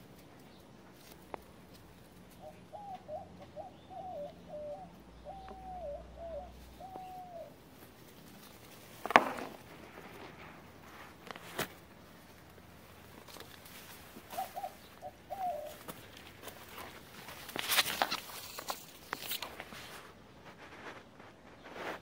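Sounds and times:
bird whistling: 2.4 - 7.5
sharp crackling knock: 9.0 - 10.4.

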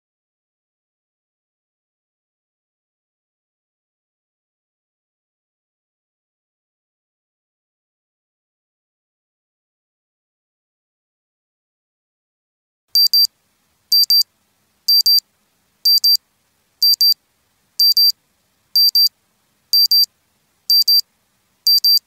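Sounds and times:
timer alarm double beep: 13.0 - 13.3, 13.9 - 14.2, 14.9 - 15.2, 15.9 - 16.2, 16.8 - 17.2, 17.8 - 18.2, 18.8 - 19.1, 19.8 - 20.1, 20.7 - 21.0, 21.7 - 22.0.

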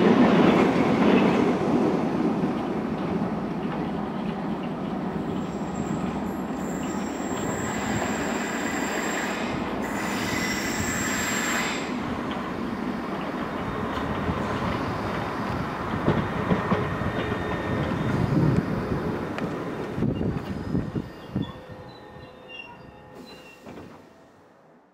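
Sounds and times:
train rumble: 0.0 - 24.5
train wheels squealing: 5.2 - 12.0, 16.7 - 19.1, 20.0 - 24.1.

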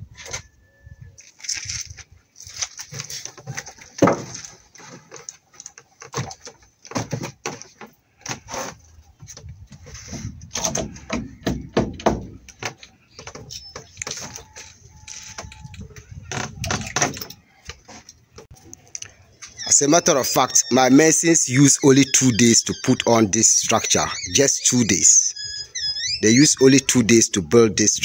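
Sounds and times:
hammer nailing timber boards: 10.6 - 12.4.

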